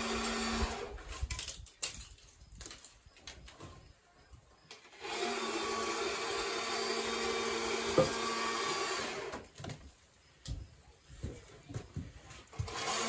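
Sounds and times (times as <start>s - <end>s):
electric hoist motor hum: 0.0s - 0.9s, 4.8s - 9.4s, 12.6s - 13.0s.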